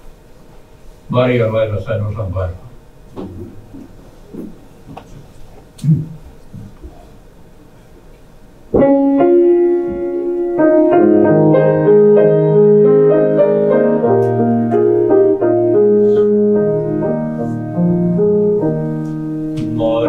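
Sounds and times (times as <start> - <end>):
piano playing slow chords: 8.6 - 20.0.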